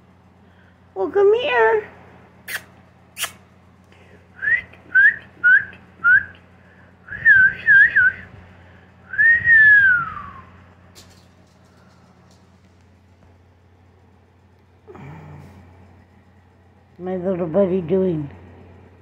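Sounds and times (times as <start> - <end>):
person whistling: 4.4 - 6.4, 7.0 - 8.3, 9.0 - 10.6.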